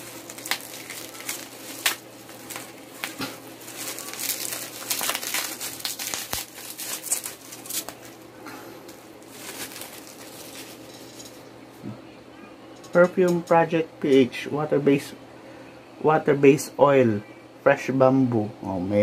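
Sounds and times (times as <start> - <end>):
bubble wrap crinkling: 0.0 - 11.4.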